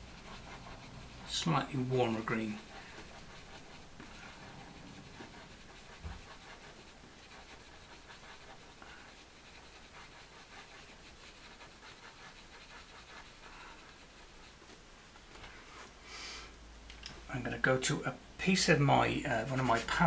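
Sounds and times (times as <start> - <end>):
pencil scratching on paper: 0.0 - 14.6, 19.3 - 20.0.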